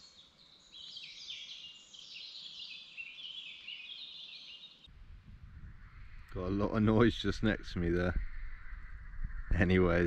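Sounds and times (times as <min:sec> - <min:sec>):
birds chirping: 0:00.0 - 0:04.9.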